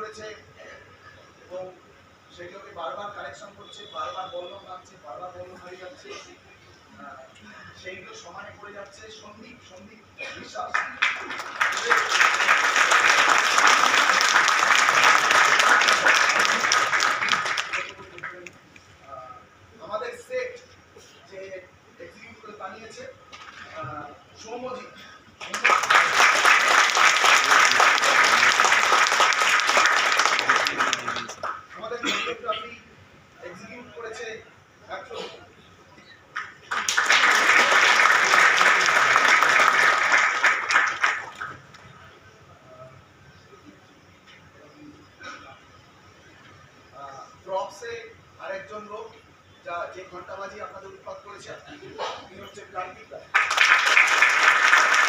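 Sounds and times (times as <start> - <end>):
audience applauding: 10.7 - 18.5, 25.4 - 31.7, 36.4 - 41.7, 53.3 - 55.0.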